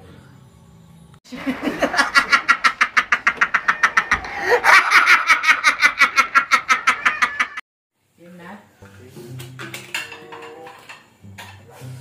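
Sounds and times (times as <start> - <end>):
man laughing hard: 1.4 - 7.6.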